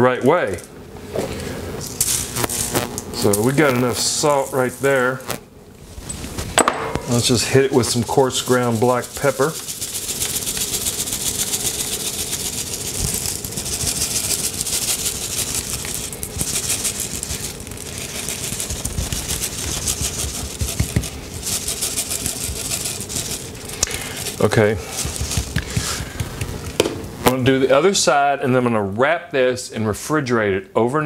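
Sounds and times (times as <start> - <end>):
pepper rattling in shaker: 7.1 - 26.7.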